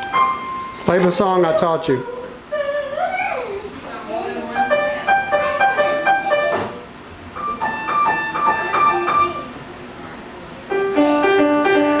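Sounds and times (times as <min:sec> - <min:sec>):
child playing piano: 0:00.0 - 0:00.9, 0:04.5 - 0:06.8, 0:07.4 - 0:09.5, 0:10.7 - 0:12.0.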